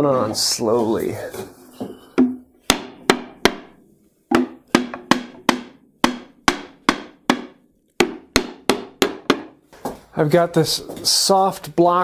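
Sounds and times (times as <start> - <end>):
wooden mallet knocking wood: 2.2 - 9.6.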